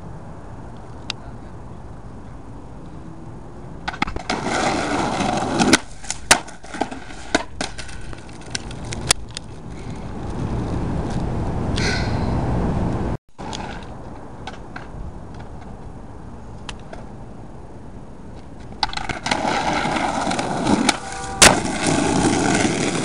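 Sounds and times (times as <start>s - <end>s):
skateboard wheels rolling on asphalt: 1.7s - 11.8s, 12.6s - 23.0s
skateboard clattering on pavement: 3.8s - 9.0s, 18.7s - 23.0s.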